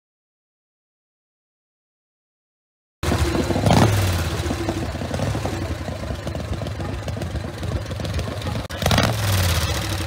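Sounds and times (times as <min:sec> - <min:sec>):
motorcycle engine idling: 0:03.0 - 0:10.0.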